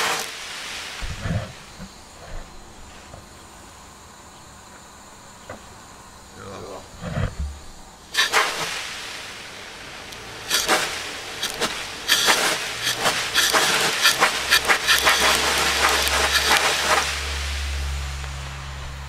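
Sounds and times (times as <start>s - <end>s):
sandblasting gun hissing: 0.0s - 3.2s, 8.1s - 19.0s
low steady hum: 0.8s - 19.0s.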